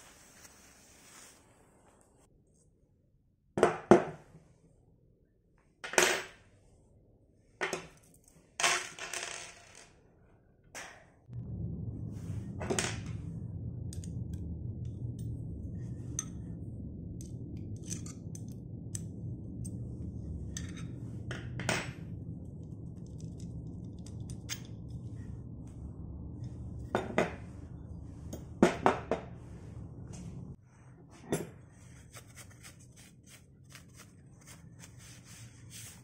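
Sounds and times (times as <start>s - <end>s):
steady low hum: 11.2s - 32.1s.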